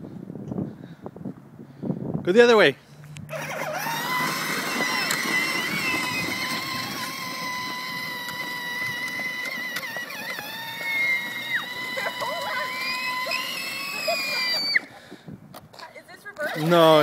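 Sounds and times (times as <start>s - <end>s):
electric motor whine: 2.9s - 14.9s
plastic wheels rolling on asphalt: 3.0s - 17.0s.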